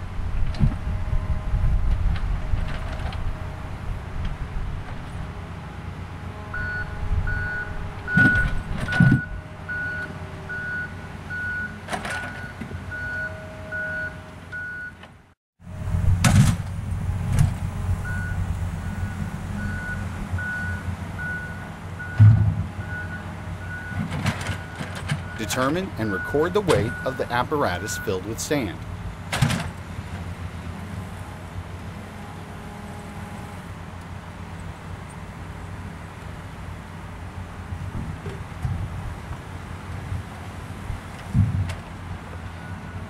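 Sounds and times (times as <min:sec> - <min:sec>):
low steady rumble: 0:00.0 - 0:11.7, 0:15.6 - 0:42.7
vehicle warning beep: 0:06.5 - 0:15.0, 0:18.0 - 0:24.0, 0:24.6 - 0:28.8, 0:42.5 - 0:43.0.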